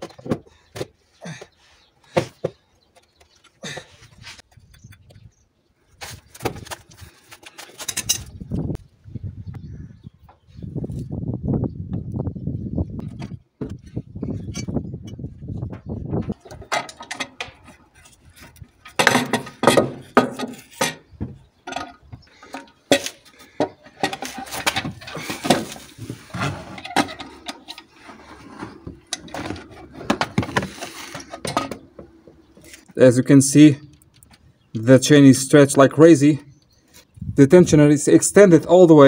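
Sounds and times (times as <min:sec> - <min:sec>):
metal tools clinking and rattling: 0:07.2 - 0:08.4, 0:14.4 - 0:15.3, 0:16.2 - 0:28.1, 0:29.0 - 0:32.9.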